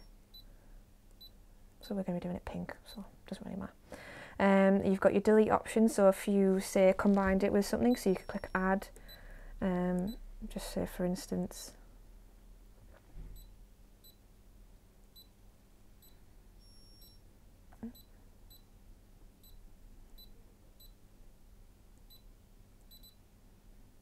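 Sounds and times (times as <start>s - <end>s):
longer beep: 16.0s - 17.2s
short high touchscreen beeps: 16.0s - 17.2s.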